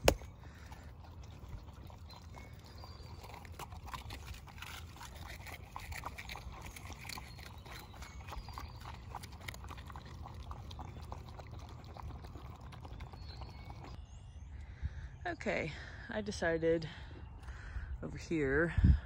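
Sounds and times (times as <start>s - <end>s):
puppies lapping water: 0.0s - 14.0s.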